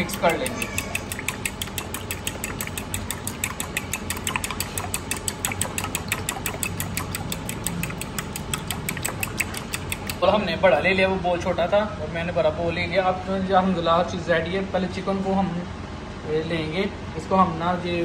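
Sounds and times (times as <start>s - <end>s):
utensil beating eggs in glass bowl: 0.0s - 10.7s.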